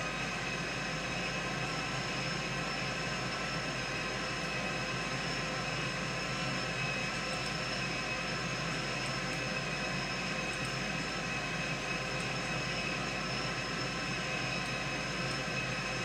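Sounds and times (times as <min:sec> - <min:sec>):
machine drone with whining tones: 0:00.0 - 0:16.0.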